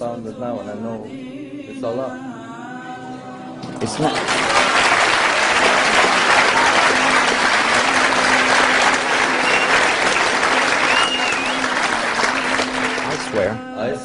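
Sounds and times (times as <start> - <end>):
audience applauding: 3.8 - 13.6.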